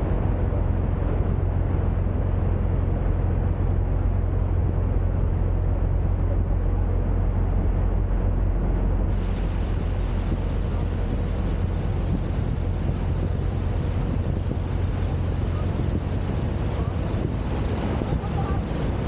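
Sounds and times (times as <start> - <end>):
boat engine rumbling: 0.0 - 19.0.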